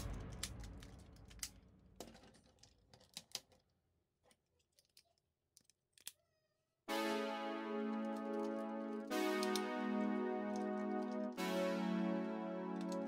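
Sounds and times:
music: 0.0s - 1.5s, 6.9s - 13.0s
plastic toy parts clicking: 0.0s - 6.3s.

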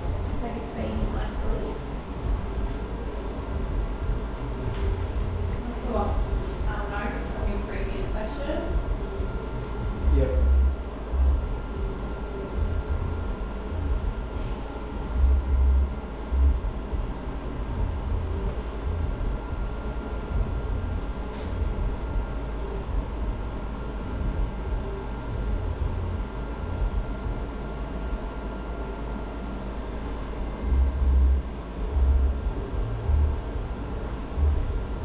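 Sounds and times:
low thumps: 0.0s - 27.4s
faint constant tone: 0.0s - 35.0s
machine blowing air with hum: 0.0s - 35.0s.

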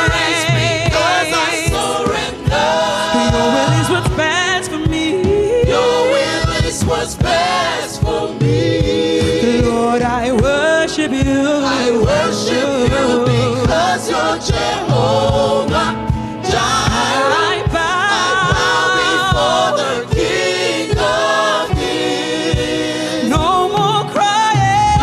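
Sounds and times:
woman singing lead vocal: 0.0s - 7.3s, 7.9s - 21.8s, 22.5s - 25.0s
steady beat: 0.0s - 10.6s
choir singing: 0.0s - 25.0s.

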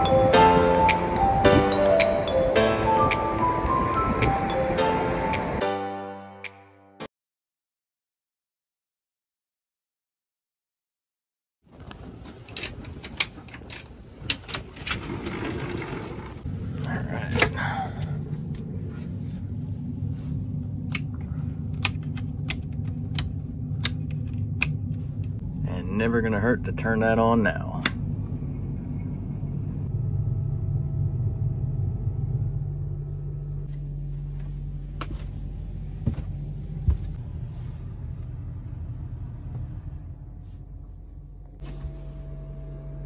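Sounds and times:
low rumble: 16.4s - 43.0s.

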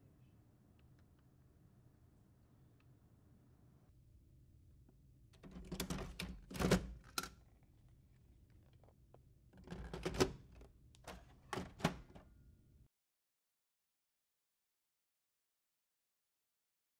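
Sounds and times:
printer door clicking shut: 11.6s - 12.2s.

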